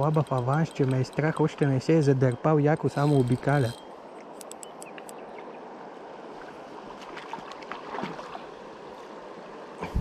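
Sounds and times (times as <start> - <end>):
faint ticks: 0.0 - 5.2.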